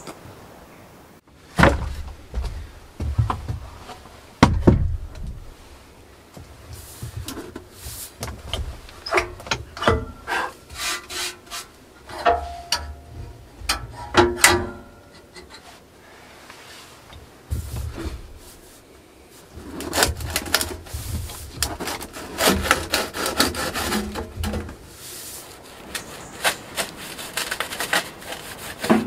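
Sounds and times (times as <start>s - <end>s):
heavy wooden thump: 1.5s - 3.8s, 4.4s - 5.6s, 17.5s - 18.4s.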